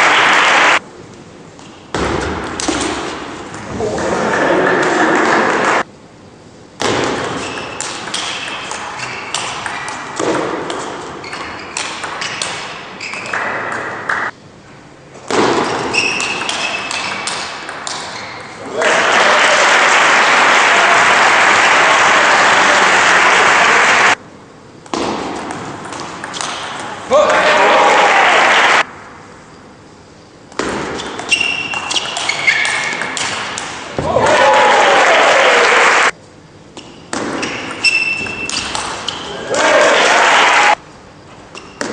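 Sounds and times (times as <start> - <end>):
shoes squeaking on floor: 7.3 - 10.0, 11.2 - 13.5, 15.6 - 17.3, 18.1 - 18.6, 31.0 - 33.0, 37.4 - 39.4.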